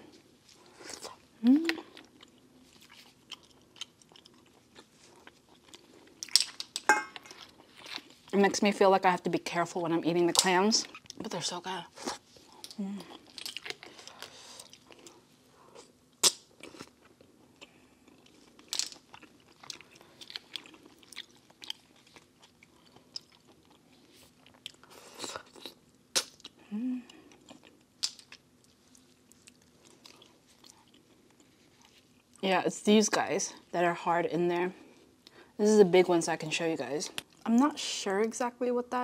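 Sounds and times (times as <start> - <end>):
chewing clams: 1.8 - 8.3, 12.0 - 15.2, 15.8 - 32.3.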